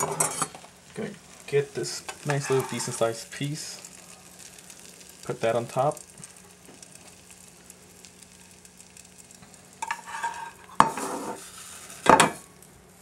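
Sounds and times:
metal spatula scraping frying pan: 0:00.0 - 0:00.5, 0:02.2 - 0:03.1, 0:09.8 - 0:12.4
sizzling: 0:00.0 - 0:13.0.

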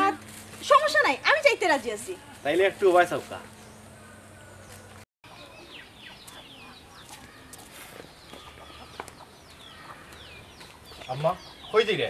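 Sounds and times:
birds chirping: 0:00.8 - 0:12.0
chickens calling: 0:03.6 - 0:12.0.

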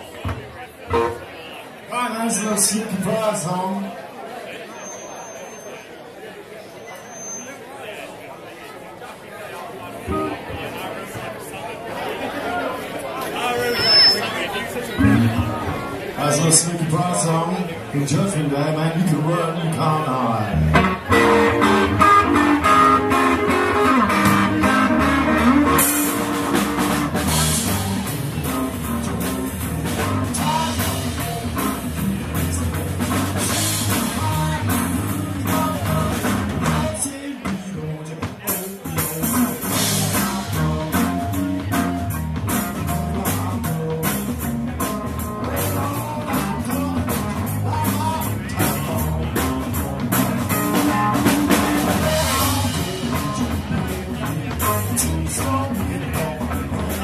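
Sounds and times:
electric guitar: 0:10.1 - 0:10.6, 0:15.0 - 0:16.0, 0:19.1 - 0:57.0
drum kit: 0:15.0 - 0:17.0, 0:20.4 - 0:57.0
electric bass: 0:15.0 - 0:37.9, 0:38.8 - 0:57.0.

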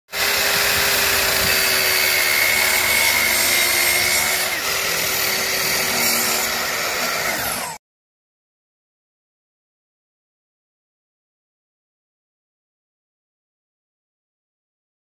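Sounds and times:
mitre saw cutting board: 0:00.1 - 0:07.8.

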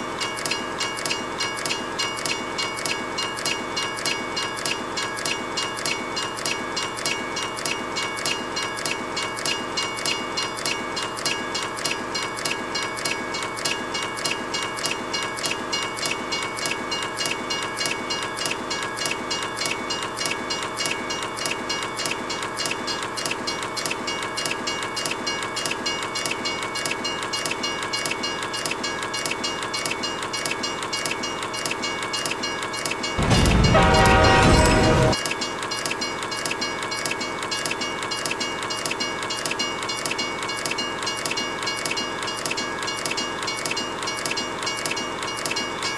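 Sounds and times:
level-crossing warning bell: 0:00.0 - 0:45.9
train horn blaring: 0:33.2 - 0:35.2.

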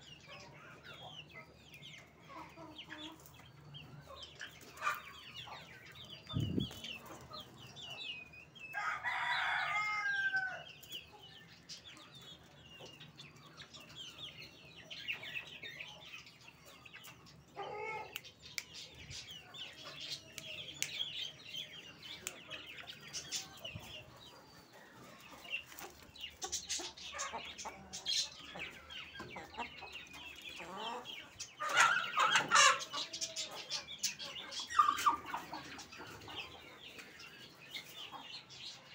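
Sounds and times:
chicks peeping and clucking: 0:00.0 - 0:38.9.

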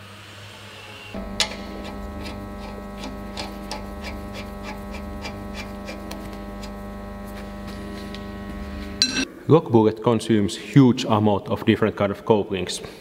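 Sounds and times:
steady electric hum: 0:00.2 - 0:09.7.

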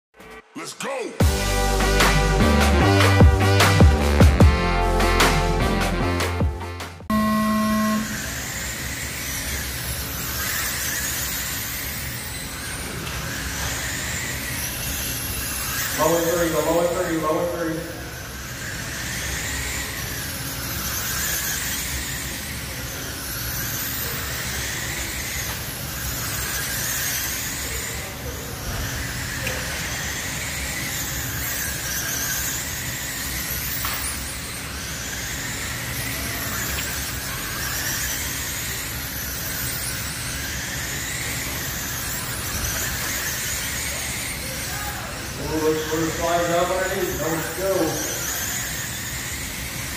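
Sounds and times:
high whines of passing cars: 0:01.3 - 0:49.9
loud electronic beep: 0:07.1 - 0:08.5
small motors whirring: 0:07.1 - 0:49.9.

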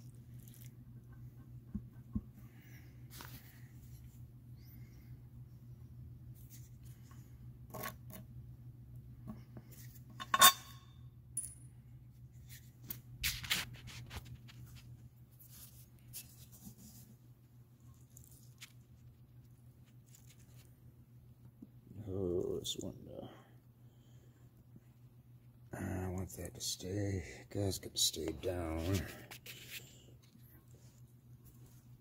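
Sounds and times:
metal tools clicking and scraping: 0:10.2 - 0:11.6.

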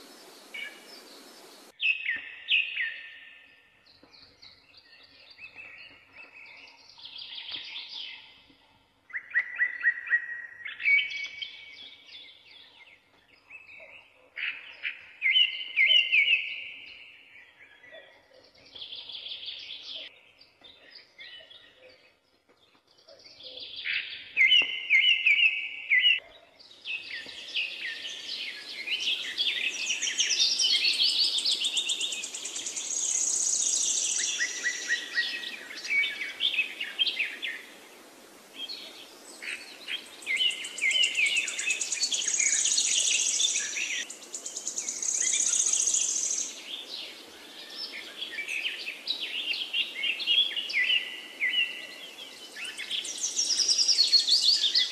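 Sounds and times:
faint background hiss: 0:00.0 - 0:01.8, 0:26.6 - 0:54.9
songbirds singing and chirping: 0:00.0 - 0:54.9.

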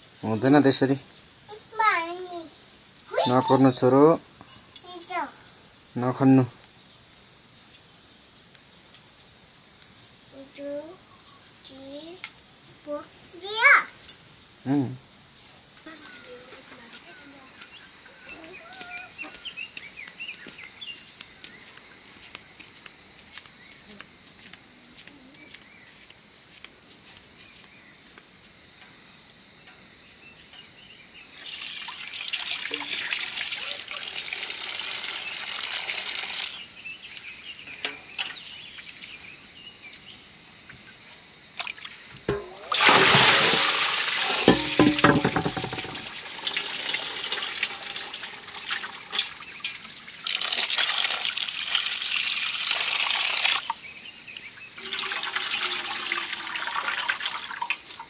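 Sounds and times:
water pouring and splashing: 0:31.2 - 0:36.7, 0:41.5 - 0:53.8, 0:54.8 - 0:58.0
knocks: 0:44.5 - 0:46.0.

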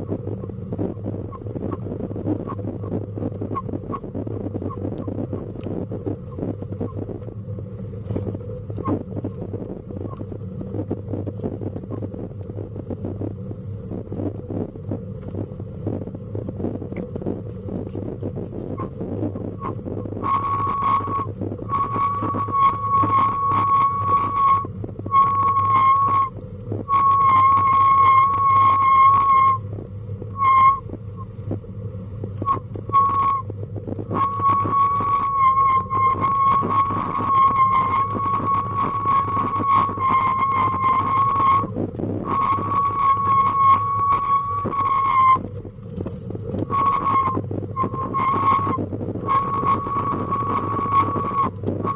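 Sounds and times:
low rolling rumble: 0:00.0 - 0:51.9
steady low hum: 0:00.0 - 0:51.9
high-pitched squeal: 0:19.6 - 0:26.3, 0:26.9 - 0:29.7, 0:30.4 - 0:30.8, 0:32.4 - 0:33.5, 0:34.1 - 0:45.4, 0:46.6 - 0:51.9.

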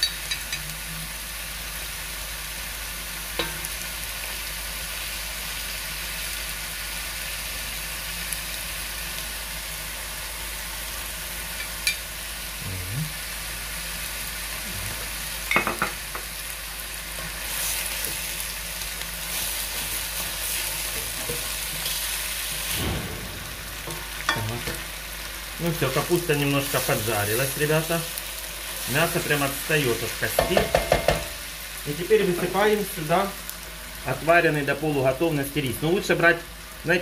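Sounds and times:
metal spoon clinking on pan: 0:00.0 - 0:00.6
food sizzling in a pan: 0:00.0 - 0:37.0.

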